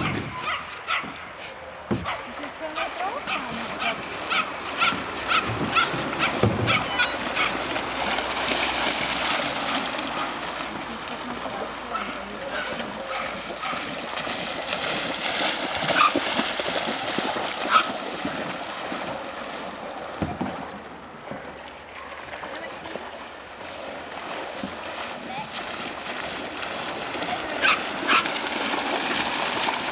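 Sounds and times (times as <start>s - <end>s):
dog barking: 0.0s - 1.2s, 2.0s - 7.6s, 11.9s - 13.9s, 15.9s - 16.2s, 17.7s - 17.9s, 27.6s - 28.3s
splashing through shallow water: 0.0s - 29.9s.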